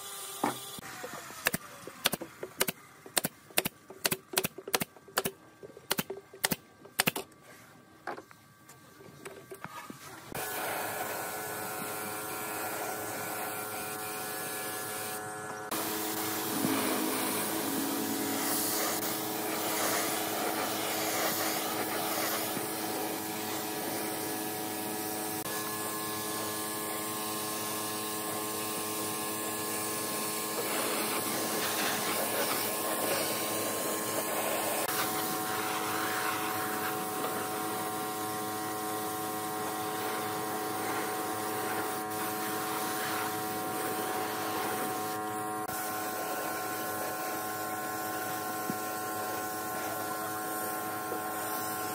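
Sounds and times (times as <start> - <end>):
steady multi-pitch hum: 1.6 - 25.8
spray gun hissing: 10.4 - 25.5, 29.6 - 37.7, 39.9 - 45.2, 49.2 - 51.9.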